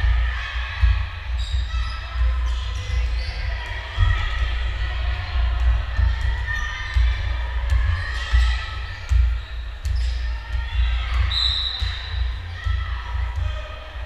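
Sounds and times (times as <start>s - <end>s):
voices in background: 0.0s - 14.0s
basketball bouncing on gym floor: 5.5s - 14.0s.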